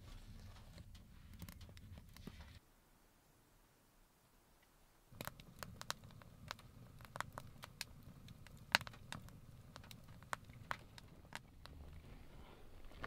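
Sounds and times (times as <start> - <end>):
low rumble of stove fire: 0.0 - 2.6, 5.0 - 13.0
wood fire crackling: 0.0 - 2.6, 5.1 - 13.0.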